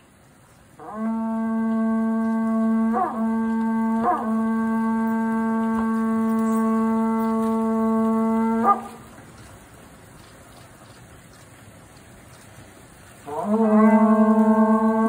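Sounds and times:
conch shell trumpet note: 0.8s - 9.1s, 13.3s - 15.0s.

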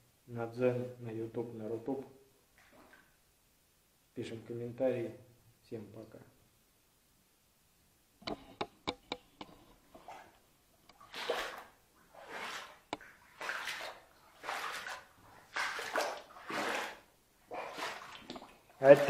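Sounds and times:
boots wading through water: 11.0s - 19.0s.

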